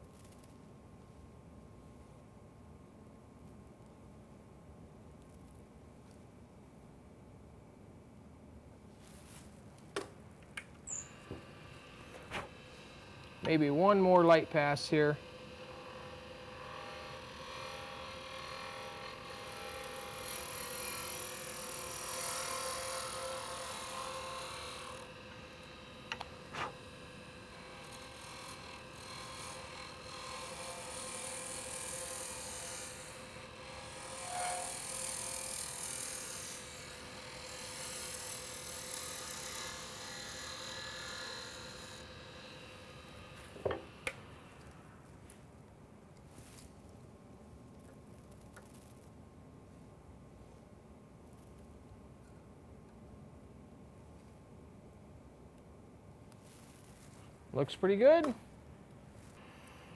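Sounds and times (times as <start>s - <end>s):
lathe humming: 11.0s - 44.9s, 59.4s - 59.9s
turning tool hissing scrape: 34.0s - 36.0s.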